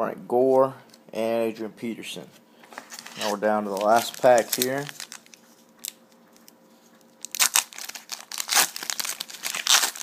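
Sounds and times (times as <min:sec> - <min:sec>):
foil wrapper crinkling: 0:02.8 - 0:06.5, 0:07.2 - 0:10.0.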